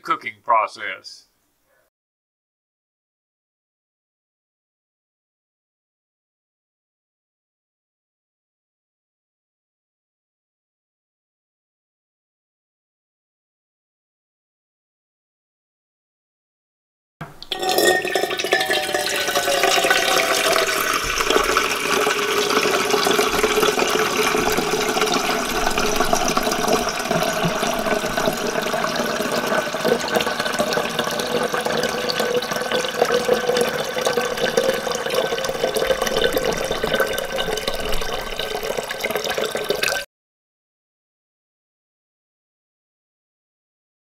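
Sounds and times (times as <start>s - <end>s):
water pouring into metal pot: 17.4s - 40.1s.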